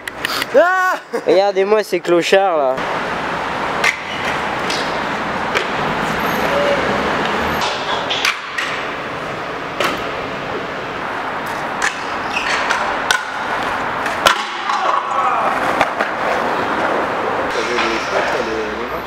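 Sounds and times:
skateboard wheels rolling on pavement: 2.1 - 17.5
skateboards clacking on concrete: 6.5 - 9.0, 11.4 - 18.4.

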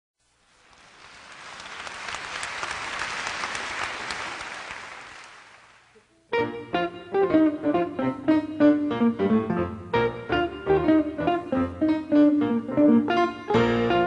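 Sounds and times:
audience applause: 0.5 - 6.0
plucked guitar notes: 6.2 - 14.0.

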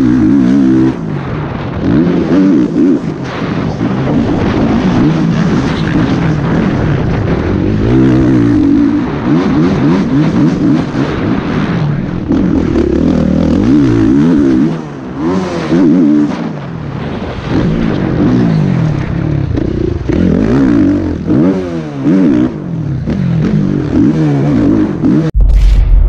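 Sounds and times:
motorcycle engine revving: 0.0 - 25.4
wind noise: 0.6 - 15.6.

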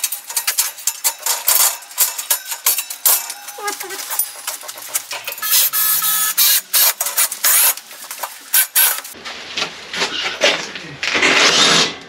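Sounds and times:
power screwdriver driving screws: 5.4 - 7.8, 8.5 - 9.1.

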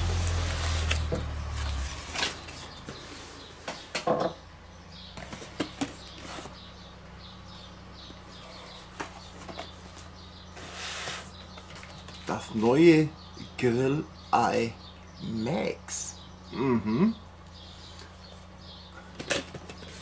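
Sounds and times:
cardboard flaps rustling: 0.0 - 3.2
boxes crackling and knocking: 5.1 - 6.7, 8.8 - 12.5, 19.1 - 20.0.

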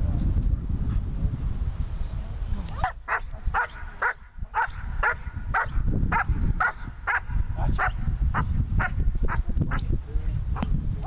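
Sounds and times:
dog barking: 2.8 - 9.4.

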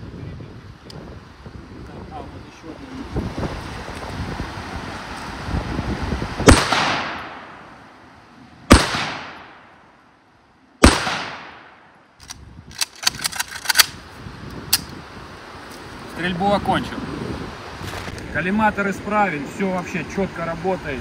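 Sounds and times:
rifle shots with echo: 6.4 - 7.7, 8.7 - 9.8, 10.8 - 12.0
sharp clicks and knocks: 12.2 - 14.0.

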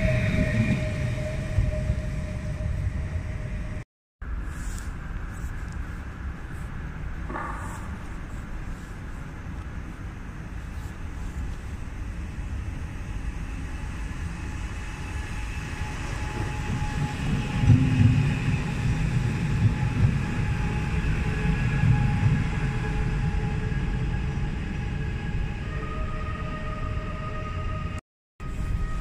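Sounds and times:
train wheels rumbling: 0.0 - 3.8, 11.0 - 29.0.

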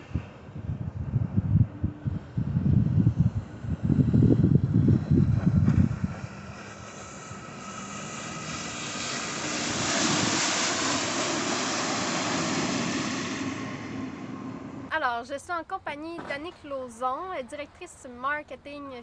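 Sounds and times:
rushing hiss of jet spray: 6.2 - 14.9.

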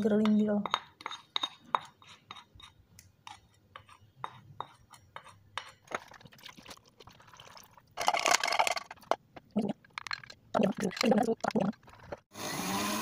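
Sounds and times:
spatula scraping glass bowl: 0.7 - 6.0.

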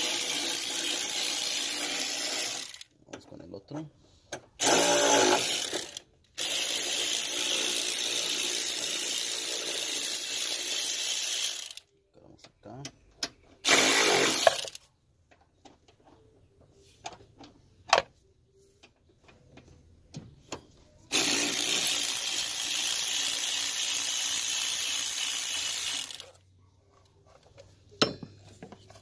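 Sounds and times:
power tool running: 4.6 - 11.8, 13.6 - 14.8, 21.1 - 26.3.

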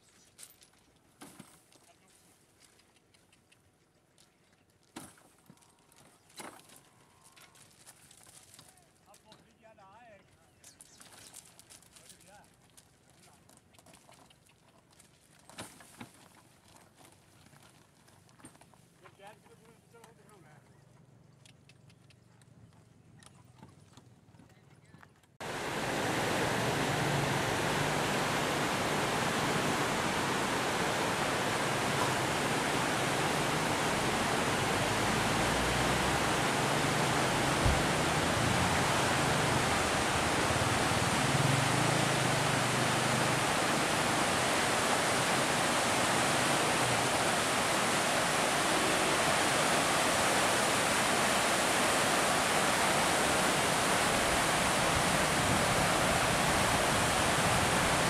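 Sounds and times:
water rushing through gates: 25.4 - 58.0.

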